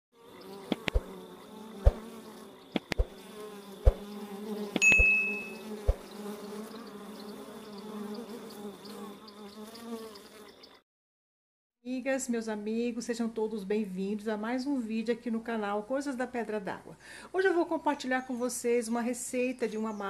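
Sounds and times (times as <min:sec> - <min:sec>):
bees buzzing: 0:00.2 - 0:10.8
short high tone: 0:04.8 - 0:05.7.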